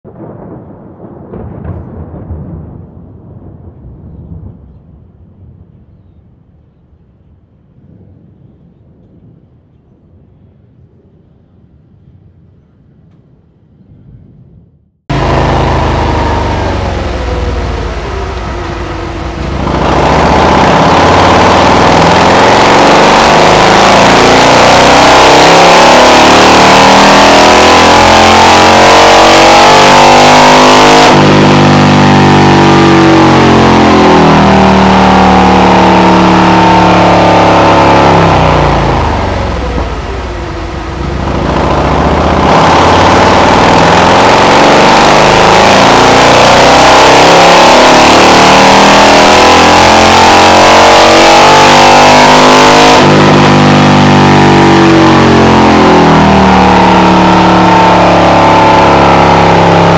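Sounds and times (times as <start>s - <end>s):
motorcycle engine revving: 15.1s - 59.9s.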